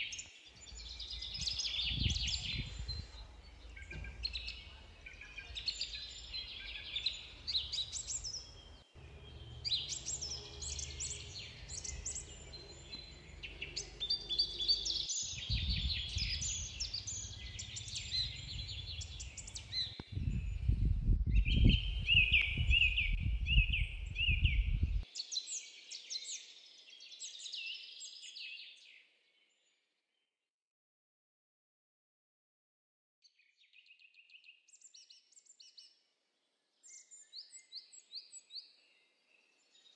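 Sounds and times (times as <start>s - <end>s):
songbirds chirping and trilling: 0.0s - 30.2s, 33.2s - 39.9s
low rumble: 15.5s - 25.0s.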